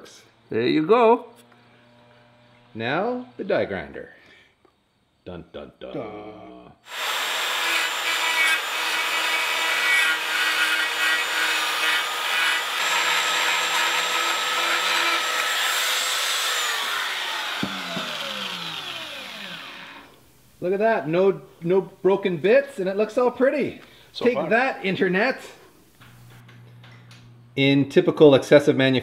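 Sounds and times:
die grinder grinding metal: 0:06.9 - 0:20.3.

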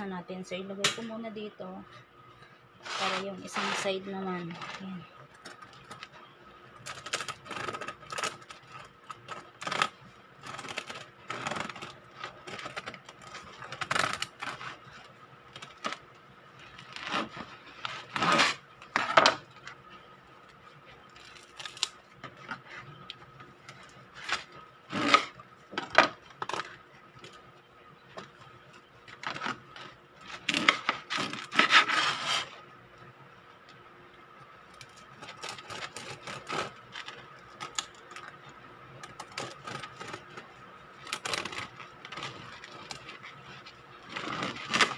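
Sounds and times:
bread knife sawing crusty loaf: 0:02.8 - 0:04.1, 0:31.3 - 0:32.6.

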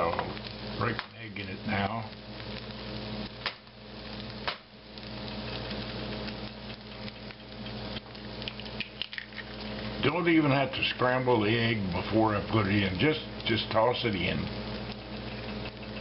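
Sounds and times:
food sizzling in frying pan: 0:00.0 - 0:16.0
egg cracking taps: 0:05.6 - 0:09.6.

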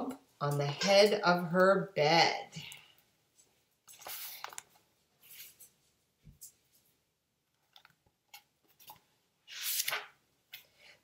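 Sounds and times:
paper rustling: 0:03.9 - 0:05.8, 0:08.3 - 0:10.7.

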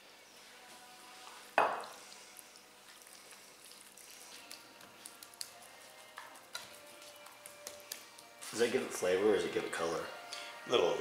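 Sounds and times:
hands rubbing oil into chicken: 0:01.2 - 0:08.7.

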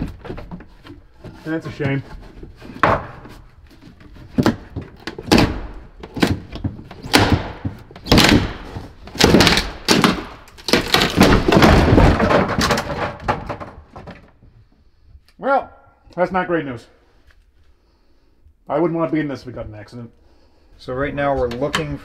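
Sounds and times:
heavy wooden thunks and bangs: 0:00.0 - 0:14.5
wood clattering: 0:00.0 - 0:14.7.

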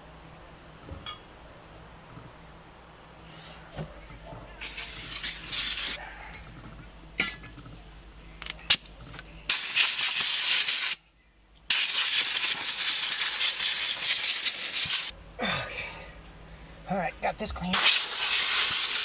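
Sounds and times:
compressed air blowgun hissing: 0:04.6 - 0:06.0, 0:09.5 - 0:11.0, 0:11.7 - 0:15.1, 0:17.7 - 0:19.0.

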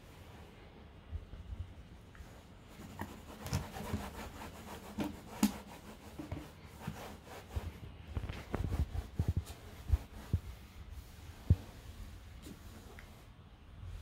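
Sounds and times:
cloth rubbing on wooden table: 0:02.8 - 0:13.3.

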